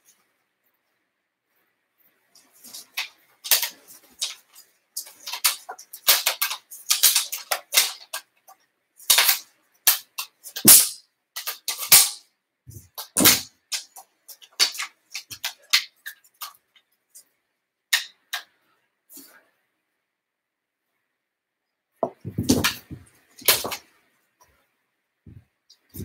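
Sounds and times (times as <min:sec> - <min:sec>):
straps rustling: 0:01.5 - 0:12.1, 0:12.7 - 0:17.3, 0:22.0 - 0:24.6, 0:25.3 - 0:26.0
heavier knocks: 0:22.0 - 0:23.8
plastic rungs clacking: 0:22.0 - 0:23.8.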